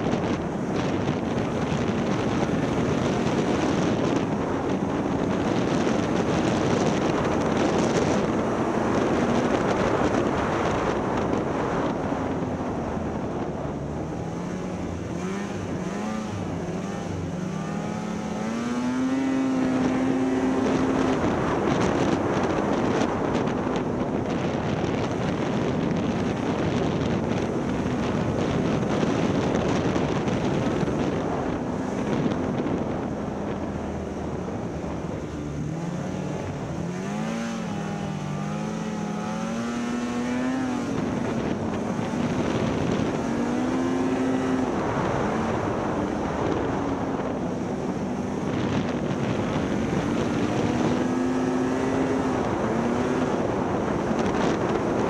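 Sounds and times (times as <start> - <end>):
snowmobile engine revving: 13.7 - 23.8, 24.4 - 55.0.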